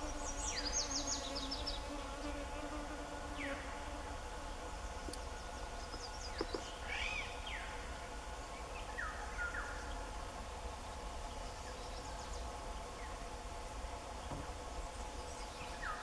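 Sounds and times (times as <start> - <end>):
insect drone: 0.0 - 16.0
bird calls: 5.0 - 7.8.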